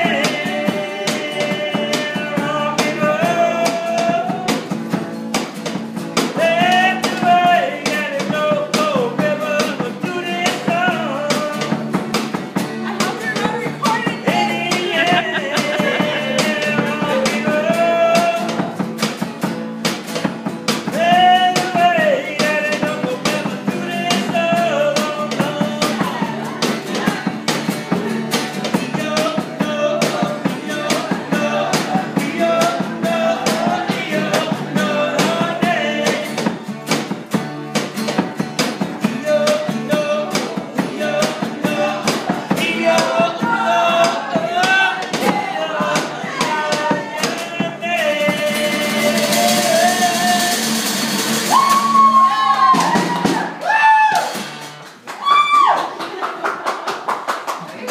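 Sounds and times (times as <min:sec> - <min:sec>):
rock and roll song: 0:00.0 - 0:55.7
gliding yells: 0:51.4 - 0:54.4.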